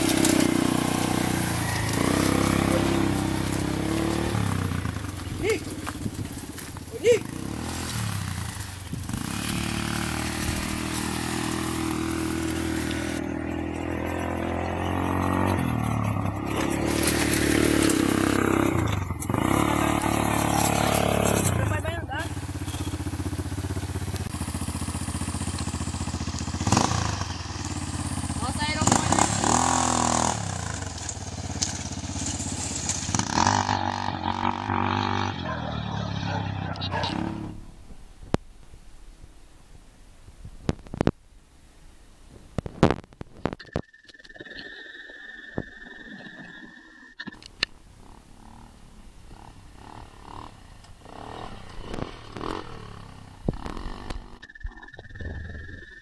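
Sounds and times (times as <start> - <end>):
quad engine revving: 0.0 - 37.7, 48.0 - 54.5.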